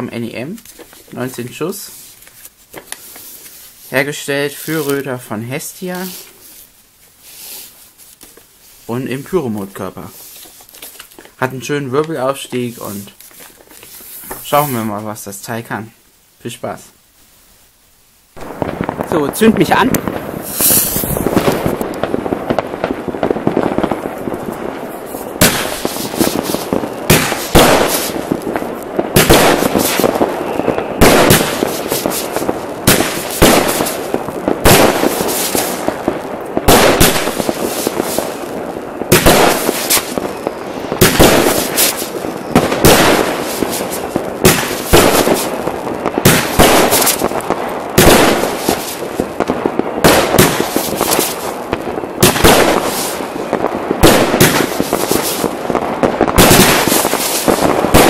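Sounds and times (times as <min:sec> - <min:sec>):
hiss of rising shells: 0:06.0 - 0:08.9, 0:20.0 - 0:22.1, 0:25.0 - 0:28.6, 0:29.2 - 0:36.0, 0:36.7 - 0:38.5, 0:39.1 - 0:40.3, 0:41.0 - 0:45.6, 0:46.2 - 0:47.4, 0:48.0 - 0:49.3, 0:50.2 - 0:51.6, 0:54.0 - 0:55.6, 0:56.4 - 0:58.0
firework bangs: 0:18.3 - 0:58.0.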